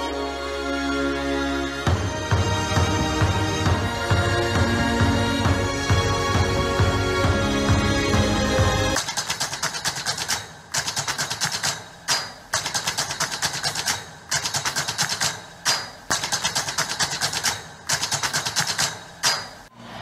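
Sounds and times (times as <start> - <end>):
dance music: 0.8 - 9.0
rapid mechanical clicking: 9.0 - 19.7.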